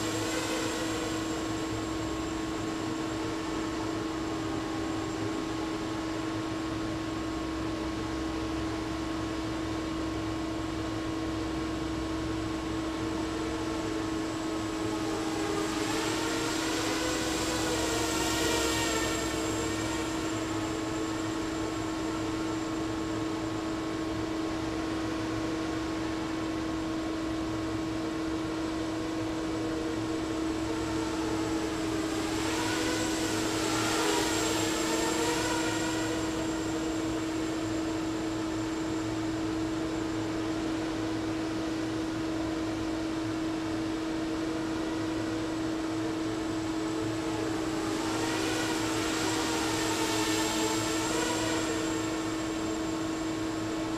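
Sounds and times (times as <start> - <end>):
quadcopter motors whining: 0.0 - 6.8, 13.0 - 26.3, 28.7 - 40.9, 44.6 - 53.9
steady hum: 0.0 - 53.9.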